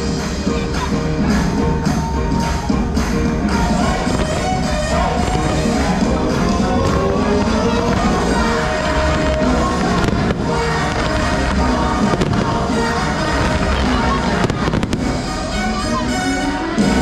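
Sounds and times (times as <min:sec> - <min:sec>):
loud show music: 0:00.0 - 0:17.0
fireworks bursting: 0:02.9 - 0:16.1.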